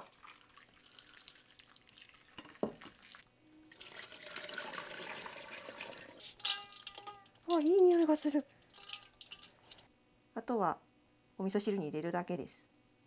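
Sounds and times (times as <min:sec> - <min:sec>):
water draining into a steel sink: 0:00.0 - 0:09.9
metal clinks against a bowl: 0:06.4 - 0:07.7, 0:08.7 - 0:09.8.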